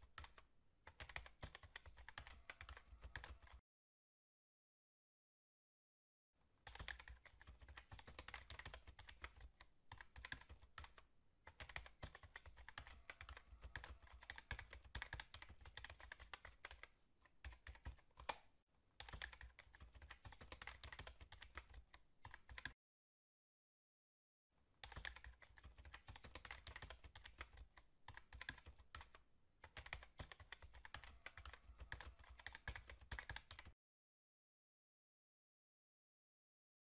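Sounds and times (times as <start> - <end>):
keyboard typing: 0.0 - 3.6, 6.6 - 22.8, 24.8 - 33.8.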